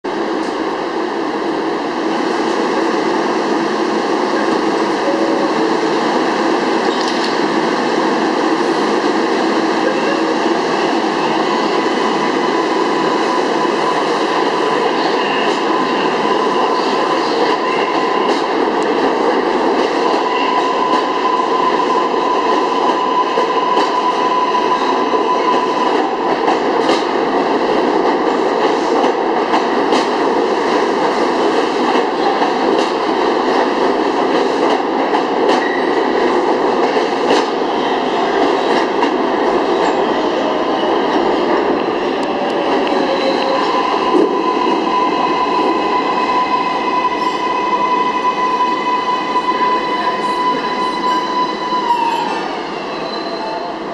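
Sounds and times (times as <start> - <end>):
subway wheels rumbling on rail: 0.0 - 53.9
train high whine: 2.5 - 19.0, 37.6 - 53.9.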